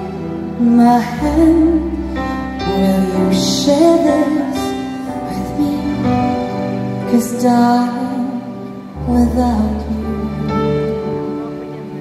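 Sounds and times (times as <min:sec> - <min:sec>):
woman singing a pop ballad: 0:00.0 - 0:10.8.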